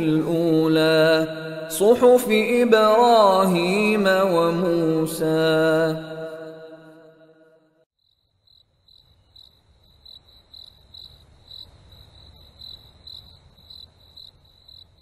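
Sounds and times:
crickets chirping: 8.0s - 15.0s.

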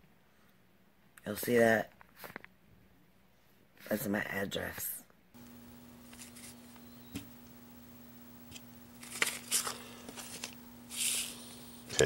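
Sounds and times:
faint steady hum: 5.3s - 12.0s
paper envelope rustling: 5.6s - 7.4s, 8.0s - 11.8s.

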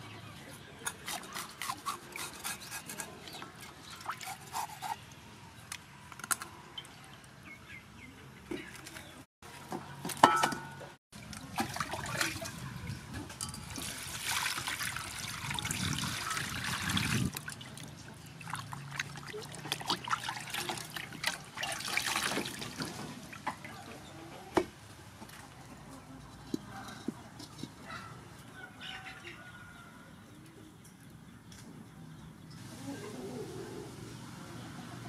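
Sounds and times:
water sloshing in a pot: 10.2s - 24.0s.

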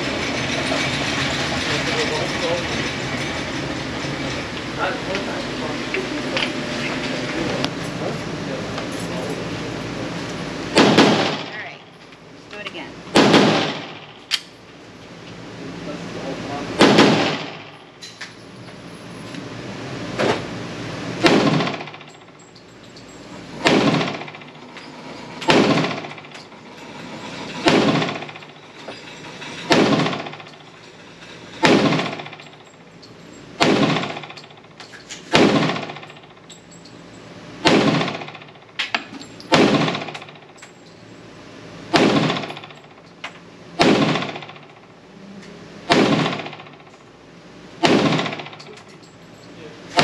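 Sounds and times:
pistol shots with echo: 10.7s - 11.6s, 13.1s - 14.1s, 16.8s - 17.8s, 21.2s - 22.0s, 23.6s - 24.4s, 25.5s - 26.2s, 27.6s - 28.4s, 29.7s - 30.4s, 31.6s - 32.4s, 33.6s - 34.3s, 35.3s - 36.1s, 37.6s - 38.5s, 39.5s - 40.2s, 41.9s - 42.6s, 43.8s - 44.6s, 45.9s - 46.7s, 47.8s - 48.6s.

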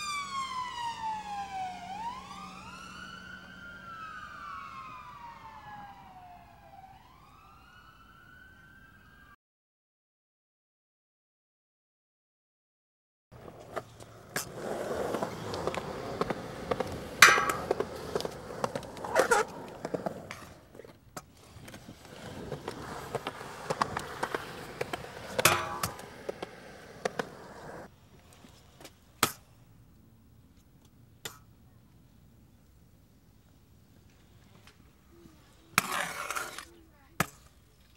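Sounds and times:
scooter clacking on ground: 13.4s - 29.5s
scooter wheels rolling on concrete: 13.4s - 29.6s, 33.5s - 37.9s.

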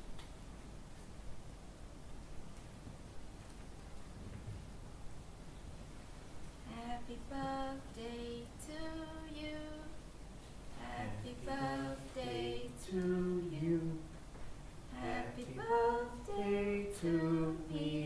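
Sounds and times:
woman singing slow melody: 6.6s - 10.1s, 10.7s - 14.2s, 14.9s - 18.0s.

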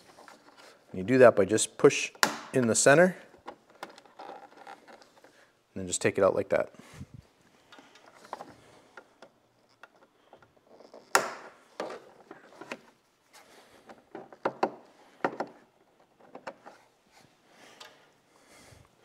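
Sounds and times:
plastic rivet clicks and knocks: 2.2s - 2.6s, 11.0s - 12.0s.

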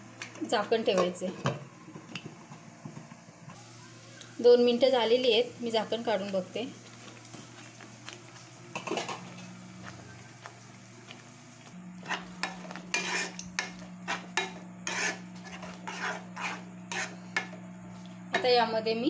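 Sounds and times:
metal spatula scraping a pan: 12.0s - 17.5s.

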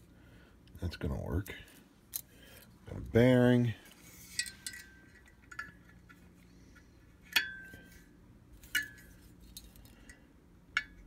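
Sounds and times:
metal parts clinking: 4.2s - 6.2s.

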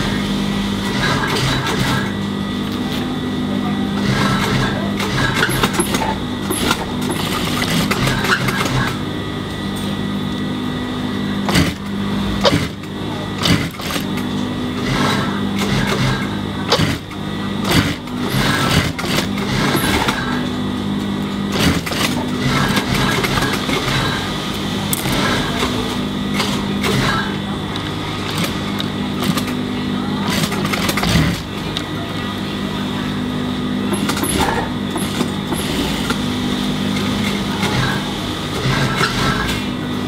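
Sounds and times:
sewing machine motor hum: 0.0s - 9.6s, 10.5s - 32.1s, 33.0s - 40.0s
sewing machine stitching: 0.8s - 2.1s, 4.0s - 9.0s, 11.5s - 20.4s, 21.5s - 24.3s, 24.9s - 27.4s, 28.2s - 29.6s, 30.2s - 31.6s, 33.9s - 39.7s.

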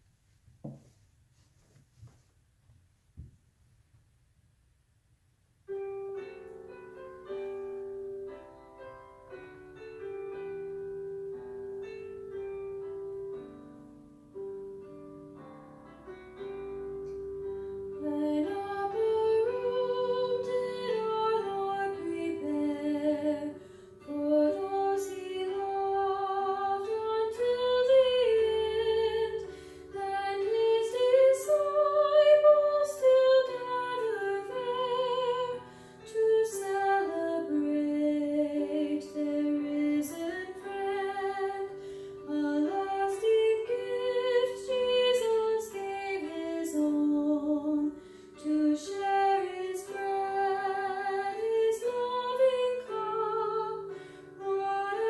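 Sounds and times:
woman singing: 18.0s - 55.0s.

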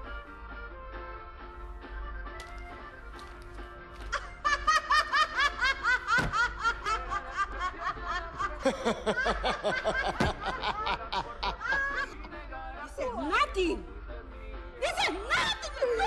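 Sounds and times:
woman laughing loudly: 4.0s - 12.2s.

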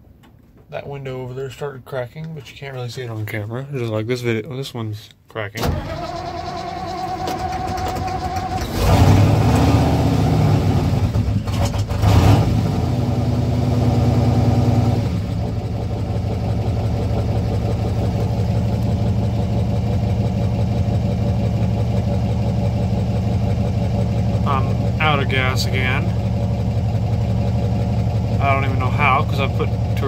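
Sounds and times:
truck engine revving and idling: 5.6s - 30.0s.

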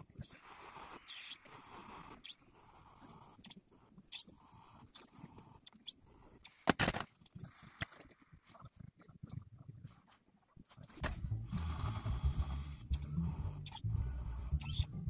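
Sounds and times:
needle tool scratching clay: 0.0s - 6.7s, 9.8s - 15.0s.

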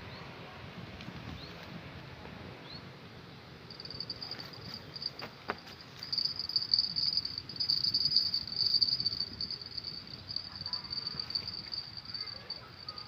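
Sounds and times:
insect trilling: 6.0s - 13.0s.

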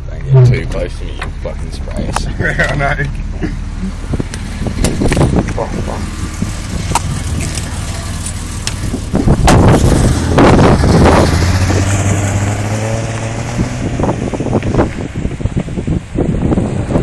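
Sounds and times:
car engine running: 0.0s - 17.0s
wind on microphone: 3.9s - 7.8s, 8.5s - 17.0s.

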